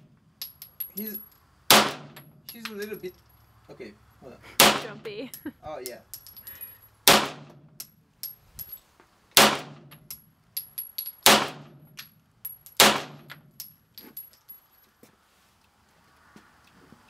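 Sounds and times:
pistol shots with echo: 1.7 - 2.2, 4.6 - 5.0, 7.1 - 7.5, 9.4 - 9.9, 11.2 - 11.8, 12.8 - 13.3.

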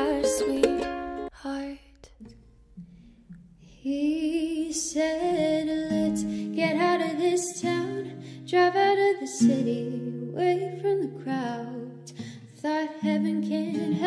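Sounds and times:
acoustic string accompaniment: 0.0 - 1.3, 4.8 - 14.0
woman singing with vibrato: 0.0 - 2.0, 3.8 - 14.0.

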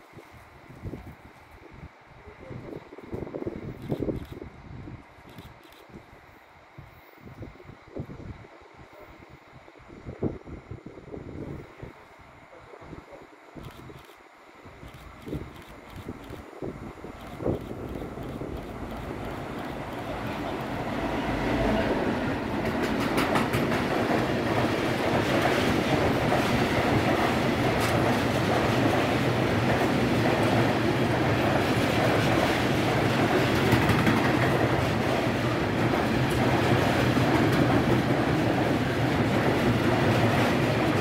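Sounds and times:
diesel locomotive passing: 17.0 - 41.0
wheels clicking over rail joints: 22.6 - 30.6.

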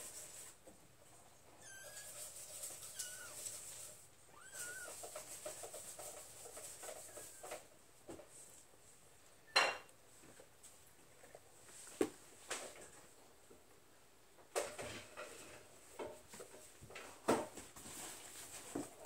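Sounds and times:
kittens mewing: 4.3 - 5.1.

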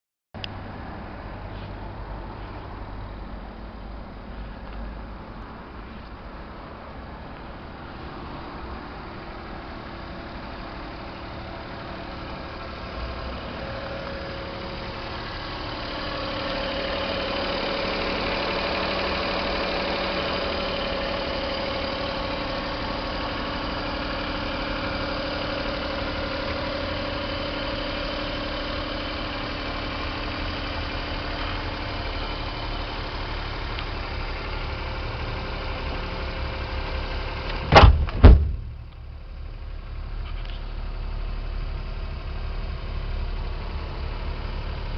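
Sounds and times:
small truck engine idling: 0.5 - 44.9
loud knocks: 37.7 - 38.9.

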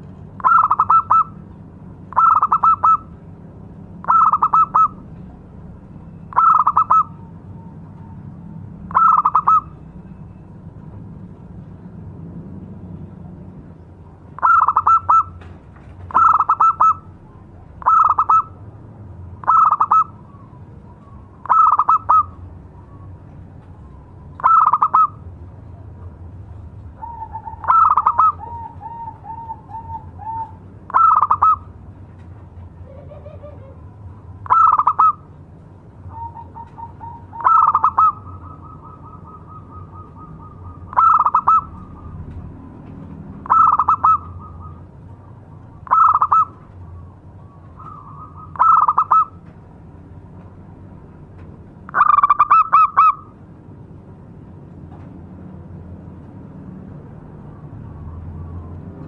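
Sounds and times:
dove cooing: 0.4 - 1.4, 2.1 - 3.2, 4.0 - 5.0, 6.3 - 8.2, 8.9 - 9.8, 14.4 - 15.4, 16.1 - 17.2, 17.8 - 18.6, 19.4 - 23.1, 24.4 - 25.2, 27.0 - 31.7, 32.8 - 35.2, 36.1 - 42.4, 43.4 - 49.4.

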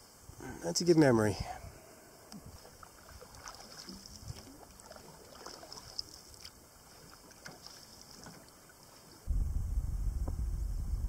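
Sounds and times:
paddle strokes in water: 2.3 - 9.3.

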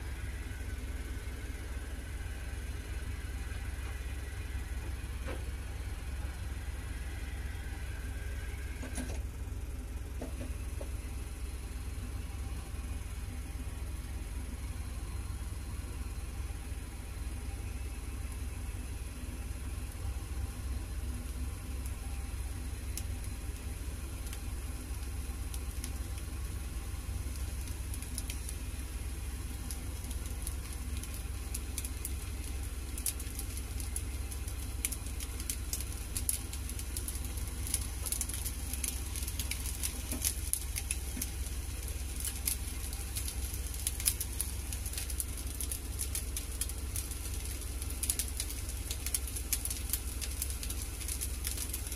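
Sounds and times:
rice sizzling in a wok: 0.0 - 51.9
steady low hum: 0.0 - 51.9
crackling pops: 17.3 - 51.9.

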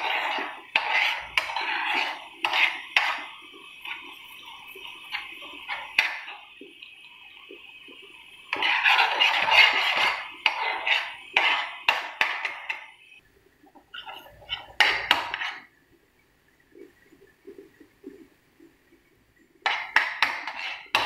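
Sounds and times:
spoon scraping a frying pan: 0.0 - 13.0, 13.8 - 15.7, 19.6 - 21.0.

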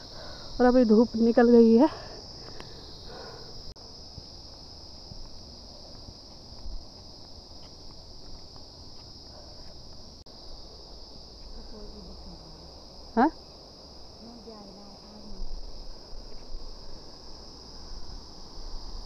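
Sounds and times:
insects buzzing shrilly: 0.0 - 19.0.

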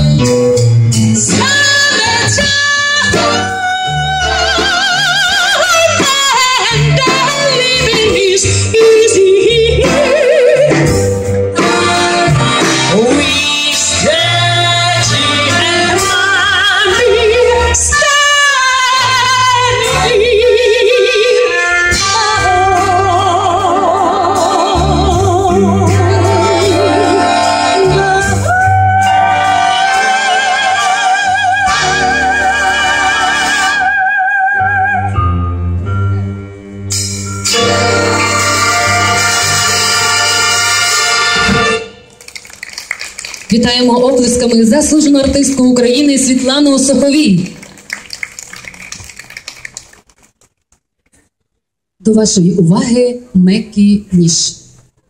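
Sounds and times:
orchestra playing: 0.0 - 49.6
soprano singing operatically: 1.3 - 10.8, 13.0 - 35.1.

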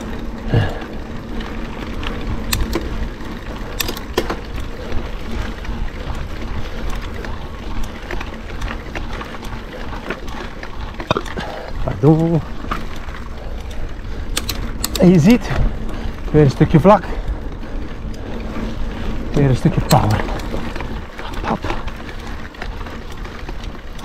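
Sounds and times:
bike clicks and rattles: 0.0 - 24.0
bike tyres rumbling on dirt: 0.0 - 24.0.

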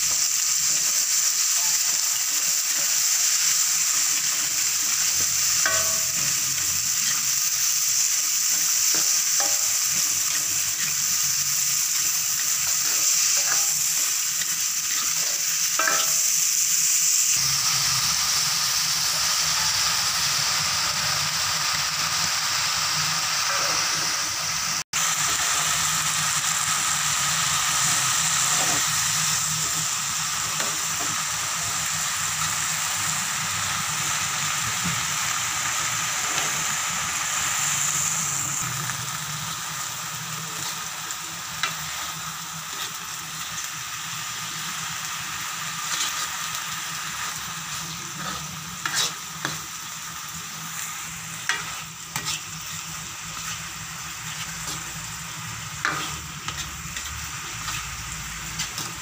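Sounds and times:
vegetables sizzling in a wok: 0.0 - 59.0
spatula scraping a wok: 0.4 - 16.6, 26.9 - 31.3, 35.8 - 43.6, 44.4 - 59.0.

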